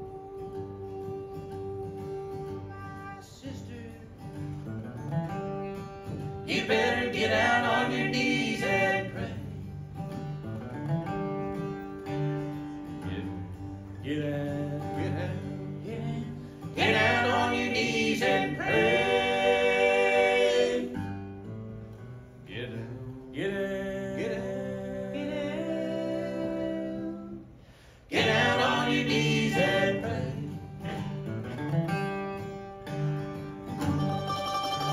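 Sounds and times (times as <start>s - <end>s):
bluegrass band playing: 0.0s - 34.9s
close harmony singing: 6.4s - 9.7s, 14.0s - 21.2s, 22.5s - 31.2s.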